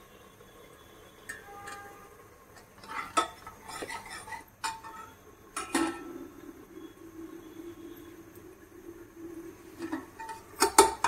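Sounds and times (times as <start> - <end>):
metal utensils clinking: 1.3 - 6.1, 9.8 - 11.0.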